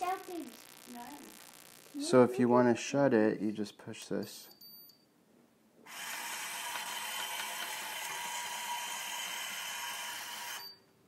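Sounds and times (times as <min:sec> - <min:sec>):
small electric motor whirring: 0:05.9 - 0:10.6.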